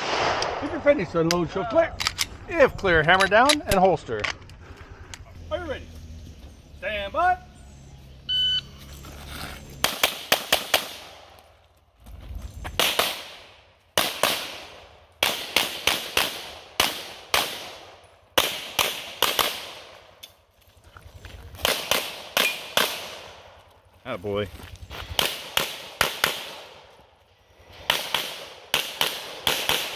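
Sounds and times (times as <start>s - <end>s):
rapid pistol fire: 9.8s - 11.1s, 14.0s - 17.8s, 25.2s - 26.8s, 27.8s - 29.9s.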